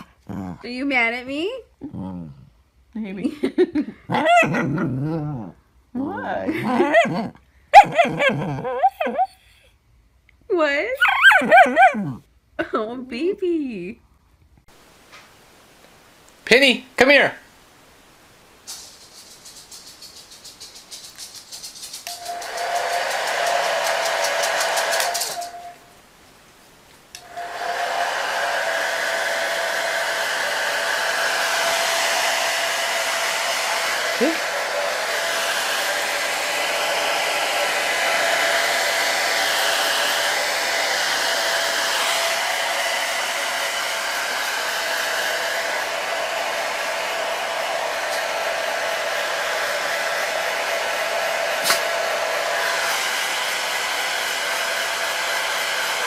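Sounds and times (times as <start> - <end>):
hair dryer whirring: 22.0 - 25.8, 27.2 - 56.0.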